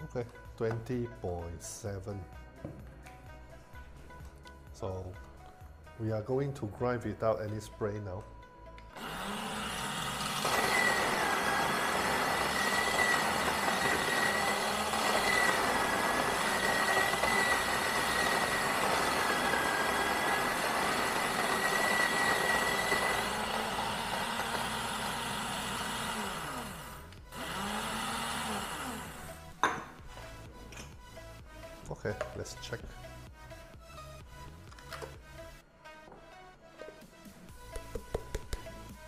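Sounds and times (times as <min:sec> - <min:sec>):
electric coffee grinder running: 0:09.0 - 0:29.4.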